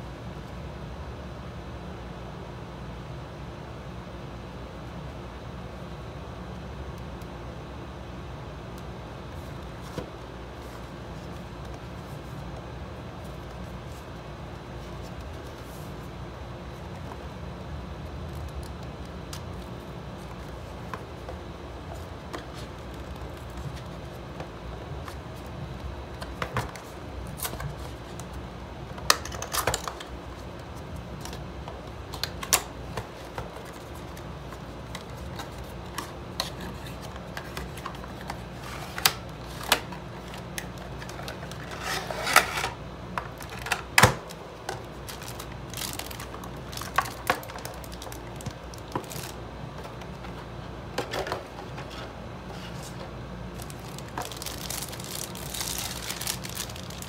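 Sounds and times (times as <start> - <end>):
steady low hum: 0.0 - 57.0
packaging rustling and crinkling: 18.2 - 57.0.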